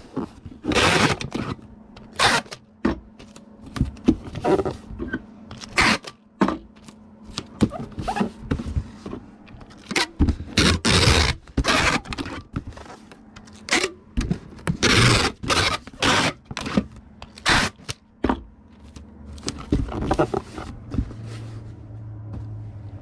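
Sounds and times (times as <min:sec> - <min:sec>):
packing tape pulled off roll: 0:05.6 - 0:06.2, 0:14.8 - 0:18.0.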